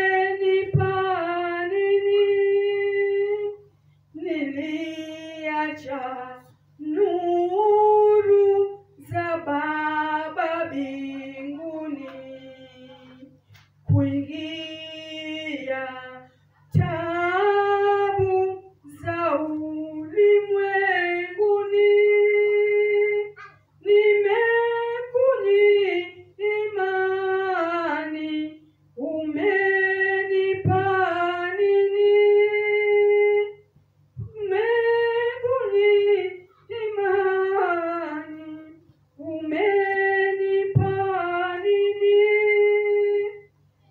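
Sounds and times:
woman singing unaccompanied: 0.0 - 43.6
faint low hum: 0.0 - 43.9.

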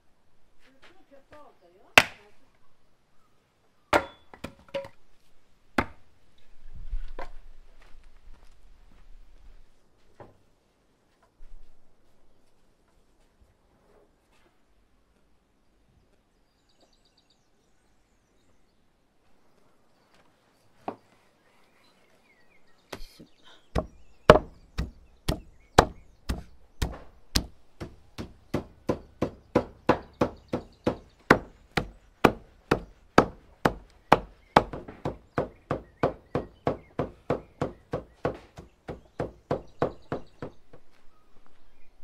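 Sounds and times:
cleaver chopping meat on wood: 23.8 - 40.6.

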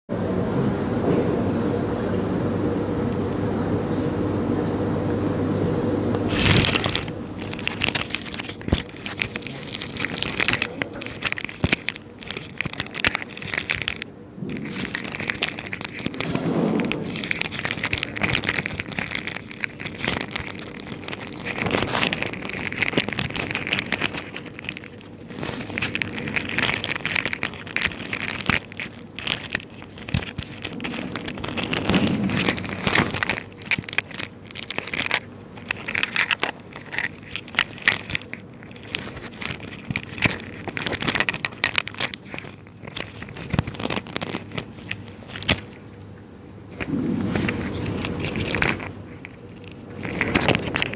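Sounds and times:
microphone handling noise: 16.0 - 17.8, 46.7 - 49.2.

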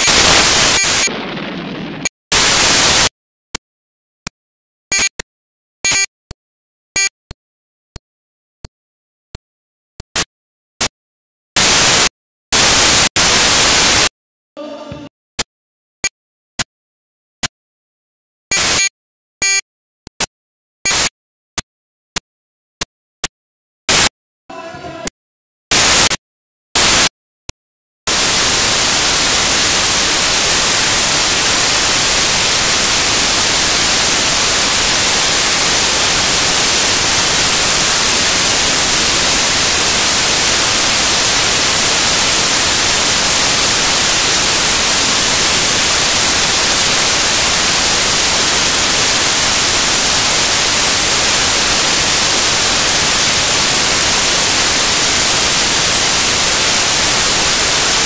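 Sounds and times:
loud static hiss: 0.0 - 3.1, 11.6 - 14.1, 23.9 - 24.1, 25.7 - 26.2, 26.8 - 27.1, 28.1 - 58.0.

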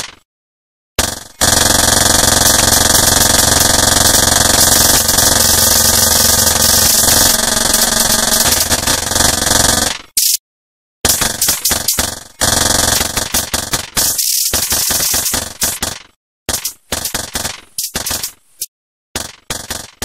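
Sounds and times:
electronic interference hiss and buzz: 2.5 - 8.7.

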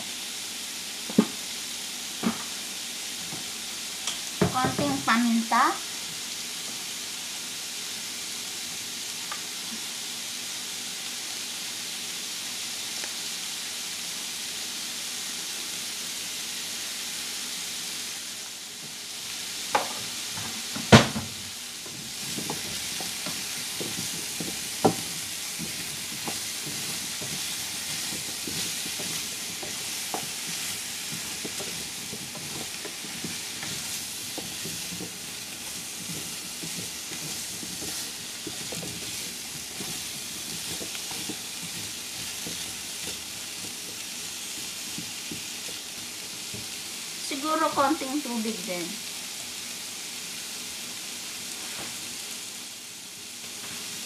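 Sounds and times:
squash sizzling in frying pan: 0.0 - 54.0
spatula knocking and scraping pan: 1.1 - 1.4, 2.2 - 2.6, 4.1 - 5.2, 19.8 - 46.8.

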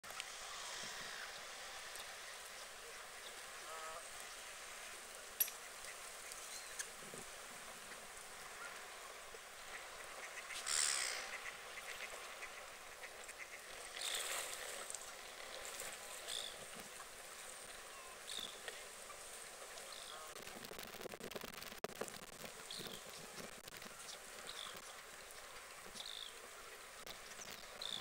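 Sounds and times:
rushes of hiss: 0.1 - 9.0
ducks quacking: 9.6 - 14.2.

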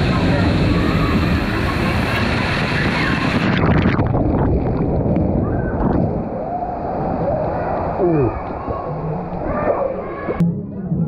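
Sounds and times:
waterfall splashing into pool: 0.0 - 6.1.

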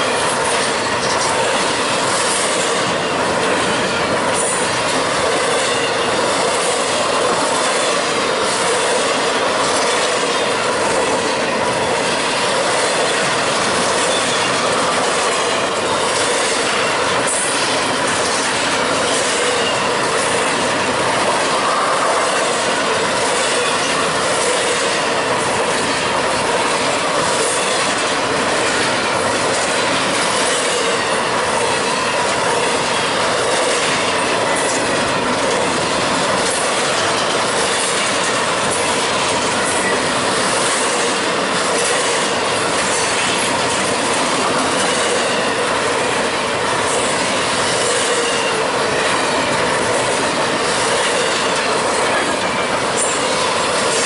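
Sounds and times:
train wheels rolling on rails: 0.0 - 54.0.

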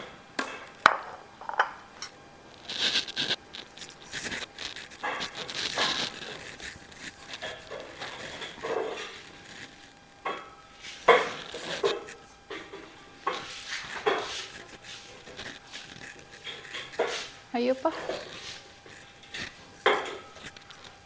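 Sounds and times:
dishes and spoon clinking: 7.3 - 9.3, 10.2 - 14.7, 16.3 - 21.0.

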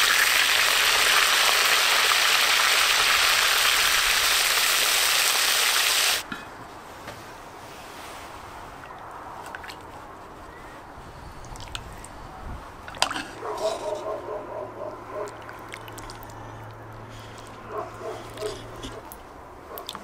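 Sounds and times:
liquid sloshing: 12.8 - 13.4, 15.3 - 16.4.

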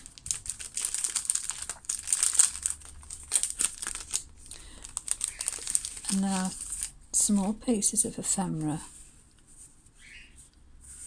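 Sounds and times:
cellophane crinkling: 0.0 - 7.8.

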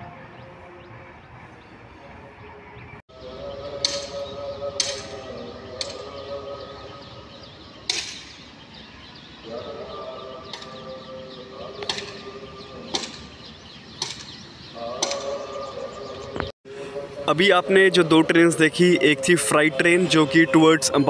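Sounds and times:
wheels clacking on rail joints: 12.9 - 14.4.

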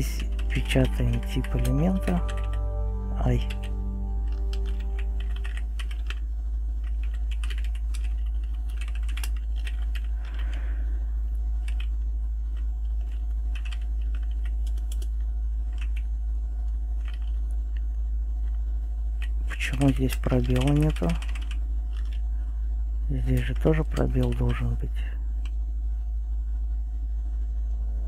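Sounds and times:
keyboard typing clicks: 0.0 - 2.7, 3.3 - 6.2, 6.8 - 10.6, 12.6 - 15.1, 20.1 - 22.2
low electrical hum: 0.0 - 28.0.

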